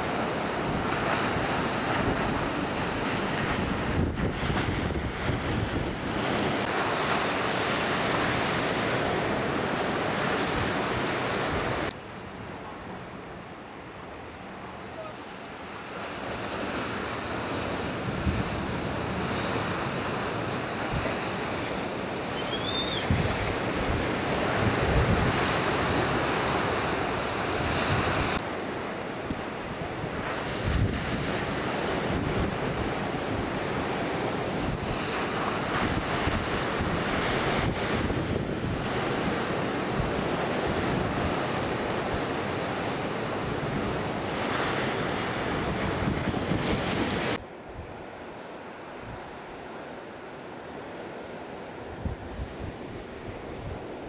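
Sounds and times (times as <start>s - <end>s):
wind buffeting microphone: 0.0s - 11.9s, 16.2s - 28.4s, 29.2s - 48.0s, 51.9s - 54.0s
ocean surf breaking: 0.0s - 54.0s
brief high squeak: 22.4s - 23.1s.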